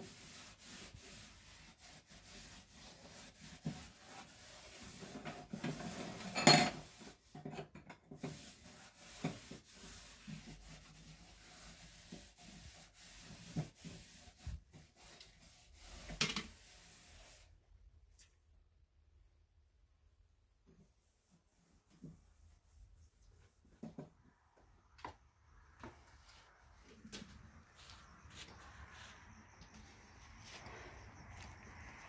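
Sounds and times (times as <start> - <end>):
hand scrubbing metal stove: 0.0 - 17.5.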